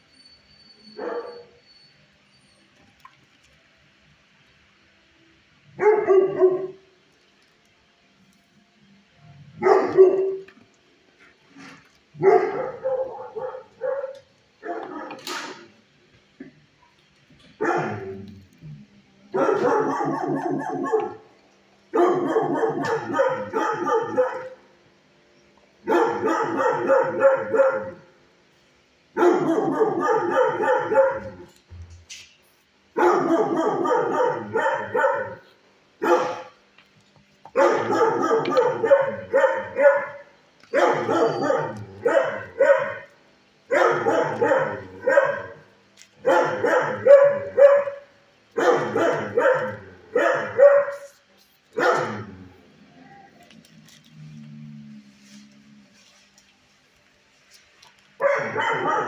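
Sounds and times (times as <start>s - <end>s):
dogs barking: 1.0s - 1.6s, 5.7s - 6.9s, 9.5s - 10.7s, 11.6s - 15.7s, 17.6s - 18.3s, 19.3s - 24.8s, 25.8s - 28.2s, 29.1s - 31.6s, 32.9s - 36.6s, 37.5s - 52.6s, 58.2s - 59.0s.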